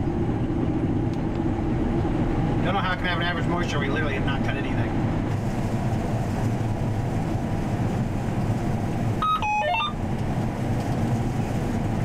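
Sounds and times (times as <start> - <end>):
combine engine low drone: 0.0 - 12.0
electronic beeps changing pitch: 9.2 - 10.0.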